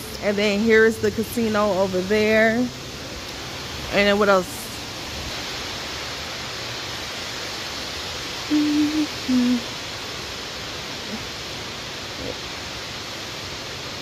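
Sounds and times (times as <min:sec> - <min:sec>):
lobby background hiss: 0:00.0 - 0:14.0
person humming two notes: 0:08.5 - 0:09.6.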